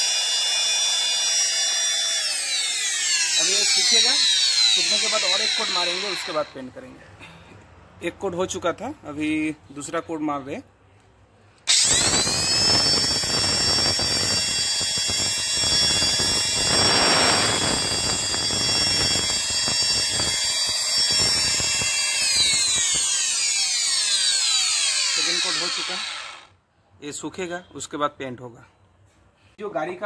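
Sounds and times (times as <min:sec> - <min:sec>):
paint spray gun motor whine: 0:00.0 - 0:06.5, 0:11.7 - 0:26.5.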